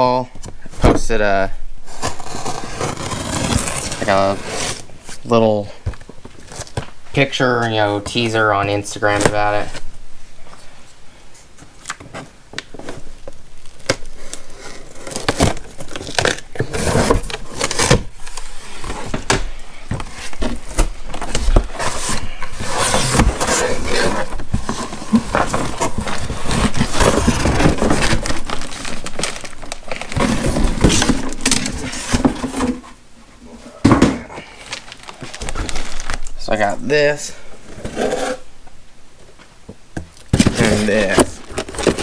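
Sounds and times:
cardboard scraping and rustling: 0:01.9 - 0:06.9, 0:12.0 - 0:36.2, 0:37.6 - 0:38.5, 0:40.3 - 0:42.0.

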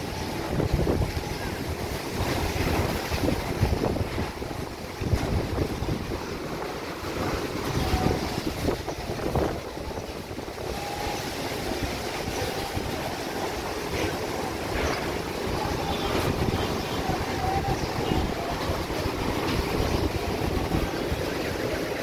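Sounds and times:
gusty wind buffeting microphone: 0:00.0 - 0:22.0.

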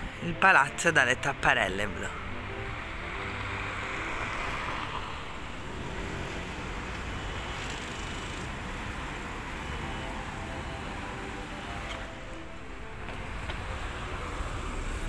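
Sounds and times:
cars running past: 0:02.0 - 0:15.0.

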